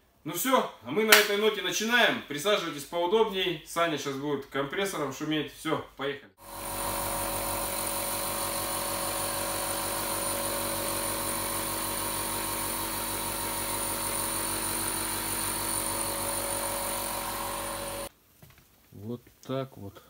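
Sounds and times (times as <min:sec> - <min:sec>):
air compressor running: 0:06.4 - 0:18.1
spray gun hissing: 0:06.4 - 0:18.1.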